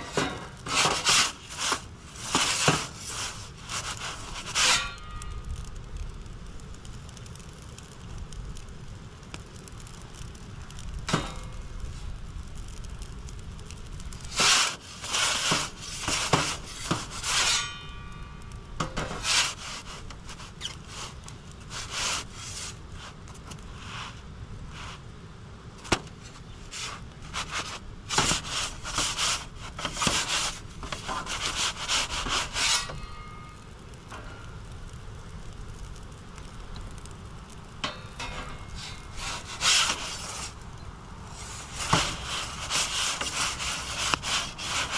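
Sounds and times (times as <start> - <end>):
metal pizza peel scraping stone: 0.0 - 5.4, 14.2 - 18.1, 18.8 - 23.2, 26.7 - 33.6, 37.8 - 40.6, 41.3 - 44.9.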